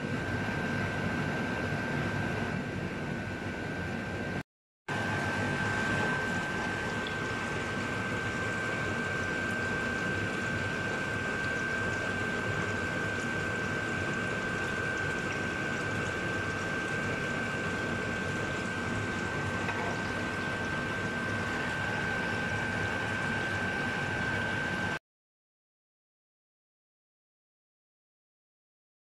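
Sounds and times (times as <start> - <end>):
saucepan simmering with hiss: 4.9 - 25.0.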